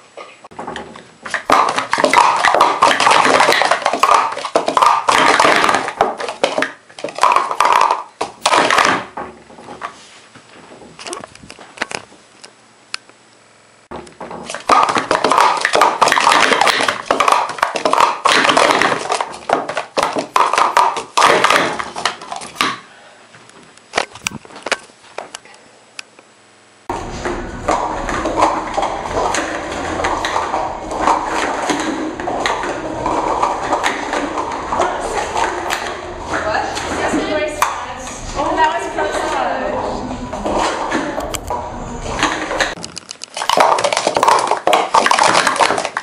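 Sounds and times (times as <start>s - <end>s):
plastic cups clattering on a mat: 0.5s - 10.0s, 13.9s - 22.9s, 27.7s - 37.8s, 42.2s - 46.0s.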